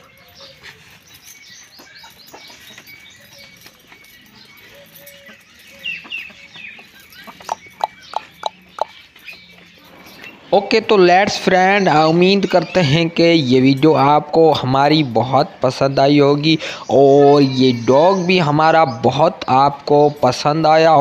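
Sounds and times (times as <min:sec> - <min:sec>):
small birds chirping: 0:00.0 - 0:21.0
hen clucking: 0:06.2 - 0:09.0.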